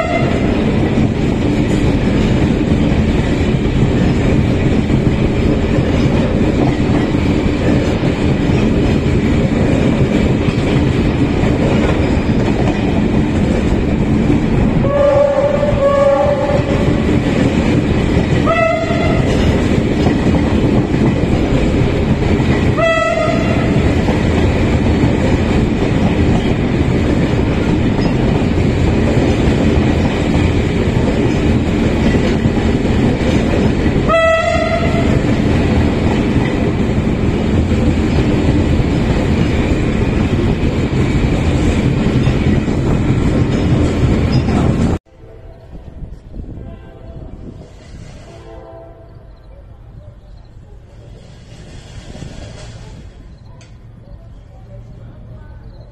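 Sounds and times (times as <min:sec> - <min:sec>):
locomotive horn blasts: 0:00.0 - 0:00.5, 0:14.8 - 0:16.9, 0:18.4 - 0:19.5, 0:22.8 - 0:23.8, 0:34.1 - 0:35.2, 0:46.6 - 0:47.4, 0:48.3 - 0:49.3
train wheels rattling on rails: 0:00.0 - 0:45.0, 0:45.6 - 0:55.9.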